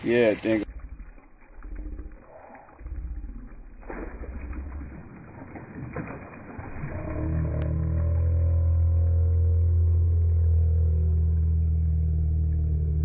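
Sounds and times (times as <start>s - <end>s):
slowed deep water splashing: 0.0s - 13.0s
low drone: 6.5s - 13.0s.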